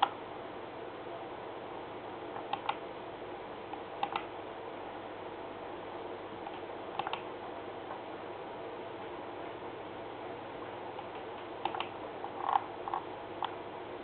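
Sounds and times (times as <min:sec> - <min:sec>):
room and computer hum: 0:00.0 - 0:14.0
computer mouse double clicks: 0:04.0 - 0:04.3, 0:07.0 - 0:07.2, 0:11.1 - 0:11.9.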